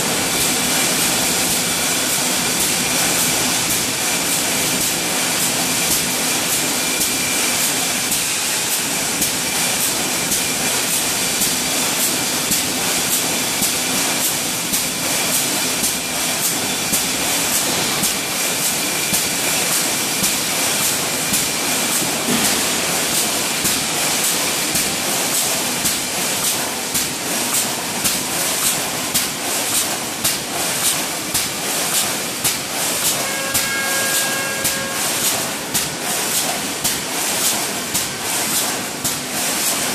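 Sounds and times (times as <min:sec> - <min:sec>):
welding machine hissing: 0:00.1 - 0:39.8.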